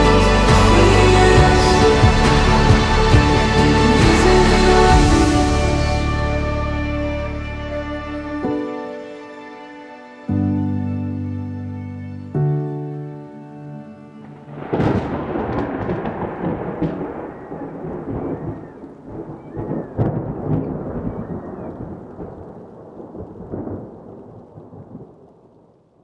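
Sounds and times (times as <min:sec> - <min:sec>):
thunder rumbling: 0:00.0 - 0:06.8, 0:14.3 - 0:26.0
sharp thunderclap: 0:14.6 - 0:25.2.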